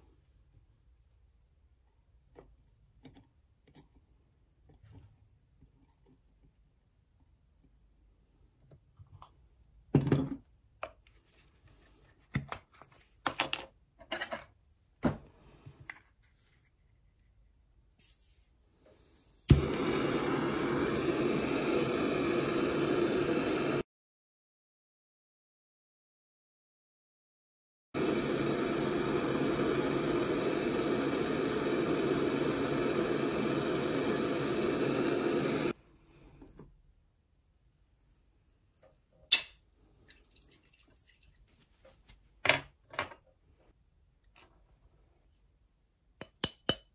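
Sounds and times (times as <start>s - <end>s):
gas torch flame hissing: 18.9s - 23.8s, 28.0s - 35.8s.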